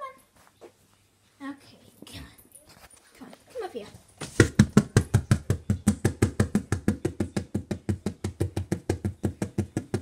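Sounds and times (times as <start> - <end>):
rapid even knocking: 4.2 - 10.0.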